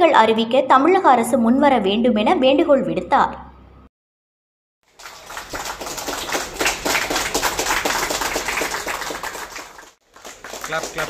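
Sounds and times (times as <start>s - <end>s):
group applauding: 4.9s - 11.0s.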